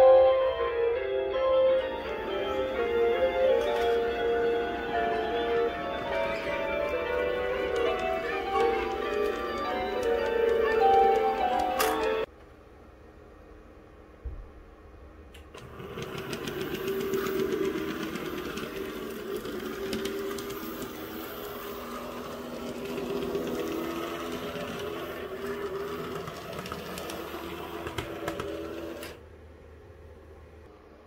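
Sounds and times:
wheels clicking on rails: 0:02.0 - 0:12.3, 0:15.3 - 0:29.2
model train motor whirring: 0:03.6 - 0:12.2, 0:15.5 - 0:29.2.

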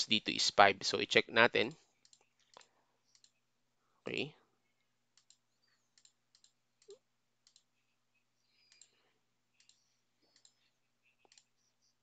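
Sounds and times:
computer mouse clicks: 0:02.0 - 0:03.4, 0:05.1 - 0:07.7, 0:08.6 - 0:09.0, 0:09.6 - 0:10.6, 0:11.2 - 0:11.5.

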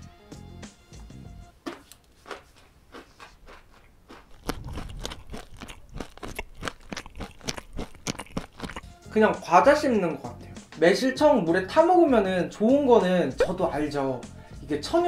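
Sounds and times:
person chewing crunchy granules: 0:01.6 - 0:09.0.

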